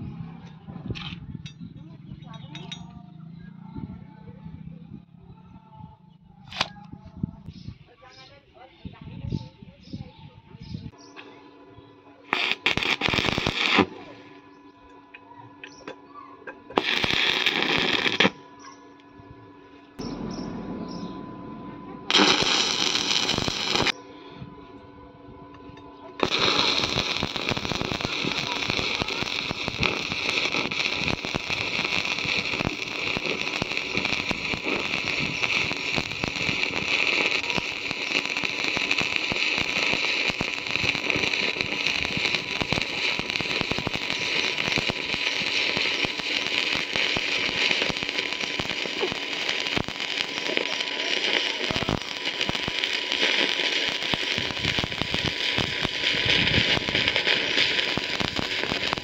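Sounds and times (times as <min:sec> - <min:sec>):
welding arc crackling and sizzling: 0:12.3 - 0:14.6, 0:16.7 - 0:18.7, 0:22.1 - 0:24.0, 0:26.2 - 0:59.0.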